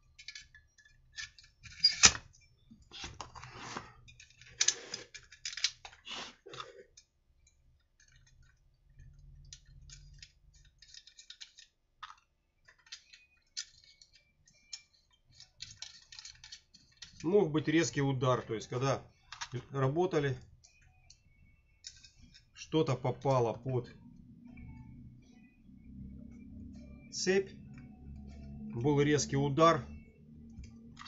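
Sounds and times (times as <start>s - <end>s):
clicks and scrapes of parts handled: 0.0s - 23.8s.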